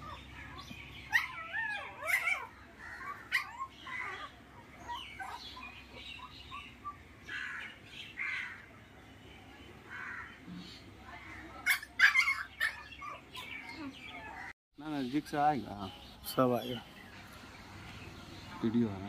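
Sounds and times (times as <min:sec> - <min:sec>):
puppies whining and yelping: 0:00.0 - 0:07.1, 0:11.7 - 0:14.5.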